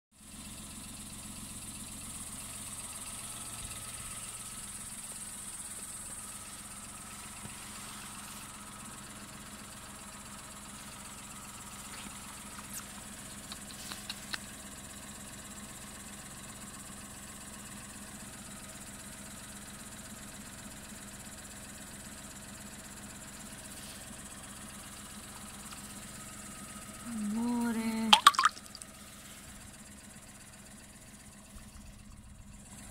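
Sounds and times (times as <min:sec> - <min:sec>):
low mechanical hum: 0:00.9 - 0:15.6.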